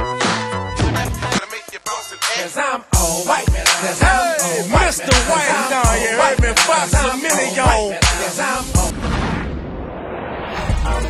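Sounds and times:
heavy bass beat: 0.0 - 1.8, 3.0 - 8.9
rapped vocal: 1.0 - 9.0, 10.7 - 11.0.

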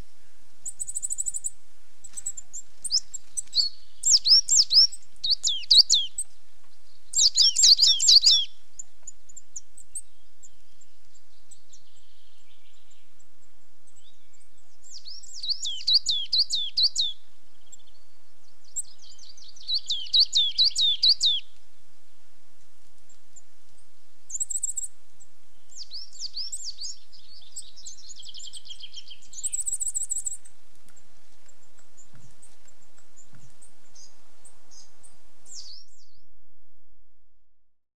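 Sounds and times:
coal tit singing: 0.6 - 10.6, 14.9 - 17.9, 18.8 - 21.5, 25.7 - 34.9.

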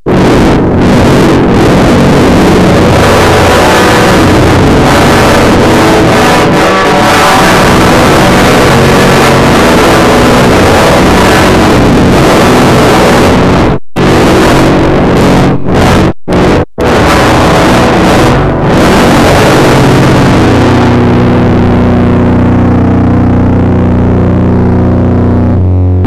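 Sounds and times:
distorted rock guitar: 0.0 - 26.0.

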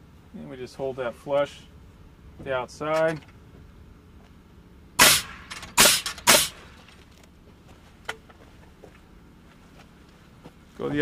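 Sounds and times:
nail gun firing into wood: 5.0 - 6.8.

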